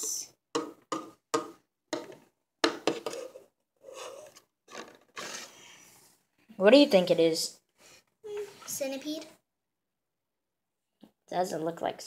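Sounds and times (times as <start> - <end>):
metal pan scraping on wood: 2.8 - 5.7.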